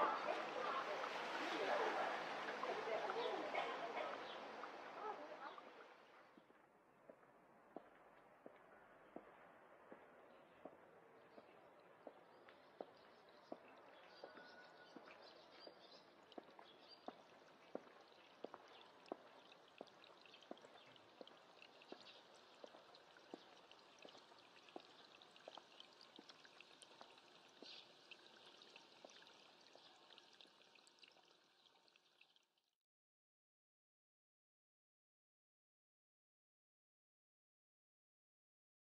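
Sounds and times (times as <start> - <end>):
dripping water: 0.0 - 6.5, 10.6 - 32.7
faint trickling water: 0.0 - 7.9, 10.3 - 32.8.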